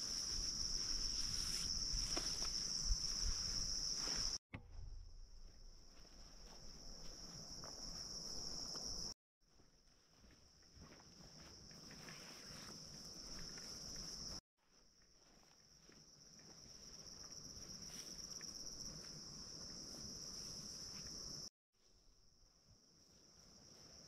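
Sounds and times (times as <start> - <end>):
high-pitched insect chorus: 0.0 - 4.4, 5.9 - 9.2.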